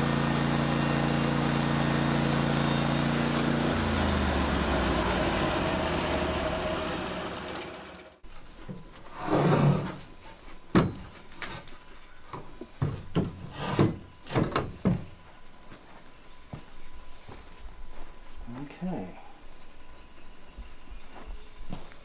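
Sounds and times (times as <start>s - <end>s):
band sawmill running: 0.0s - 8.2s.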